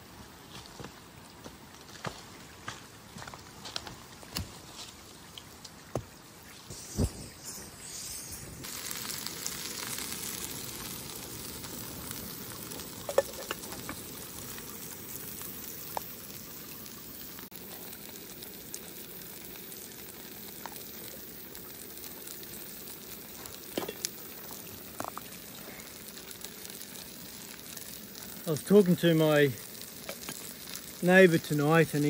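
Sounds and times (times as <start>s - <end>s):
gas stove hissing: 6.7s - 32.0s.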